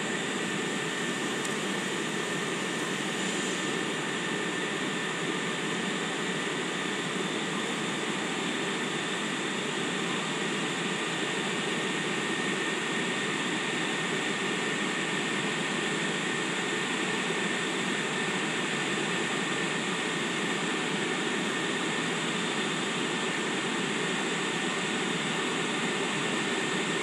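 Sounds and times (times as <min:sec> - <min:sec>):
locomotive cooling blowers whirring: 0:00.0 - 0:27.0.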